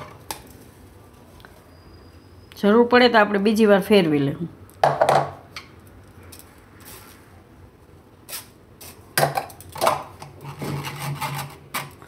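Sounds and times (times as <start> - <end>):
metal spoon scraping a mesh strainer: 10.4 - 12.0.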